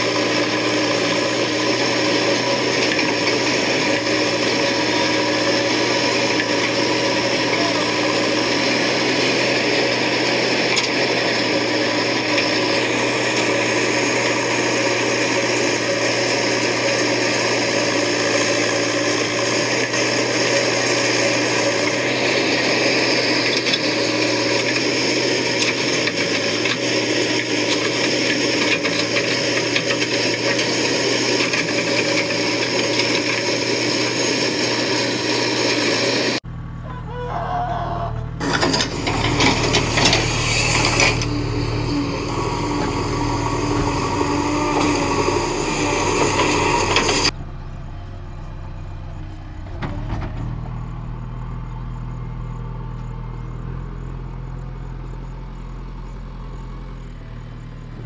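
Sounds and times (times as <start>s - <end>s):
diesel engine running under load: 0.0s - 58.0s.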